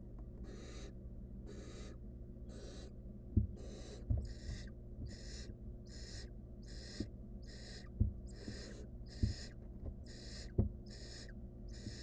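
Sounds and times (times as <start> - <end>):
steady low hum: 0.0 - 12.0
owlets hissing begging calls: 0.5 - 0.9, 1.5 - 2.9, 3.6 - 12.0
dull knocks on wooden floor: 8.0 - 10.0, 10.6 - 10.8.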